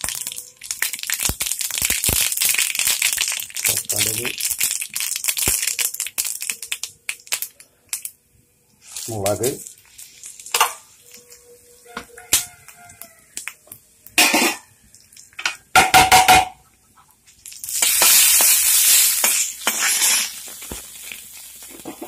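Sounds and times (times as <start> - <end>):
chillies sizzling in oil: 0.0 - 15.8, 16.6 - 22.0
spatula scraping metal pan: 19.2 - 20.5.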